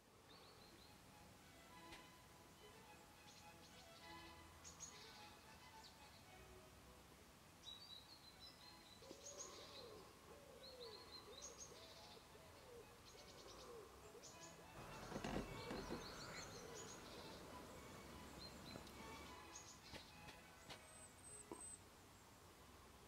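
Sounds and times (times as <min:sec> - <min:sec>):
faint birdsong chirps and trills: 0:00.0 - 0:23.0
lower arching bird calls: 0:09.0 - 0:20.2
loud rustling: 0:14.8 - 0:16.5.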